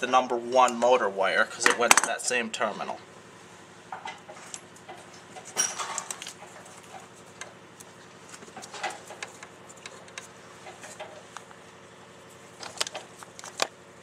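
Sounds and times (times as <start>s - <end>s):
wires and terminals clicking: 12.3s - 13.7s.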